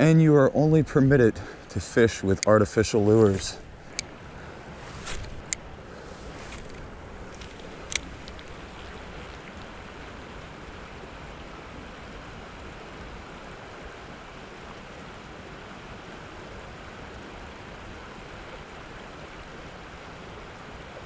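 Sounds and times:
flowing creek: 0:00.0 - 0:21.0.

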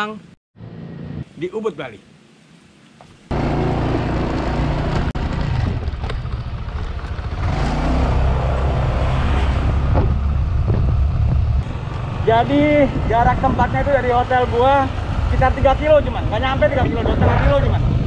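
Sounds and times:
wind on microphone: 0:08.4 - 0:18.0.

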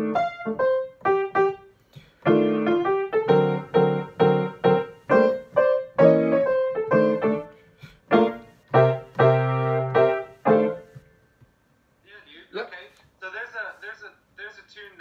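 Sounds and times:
grand piano playing jazz blues: 0:00.0 - 0:11.0.

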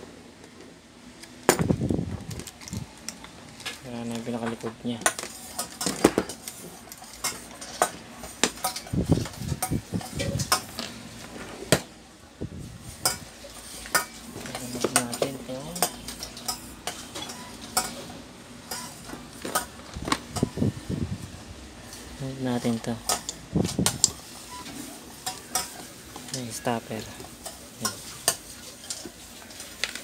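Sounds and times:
tools and parts clattering on workbench: 0:01.4 - 0:02.8, 0:03.6 - 0:11.8, 0:13.0 - 0:20.6.

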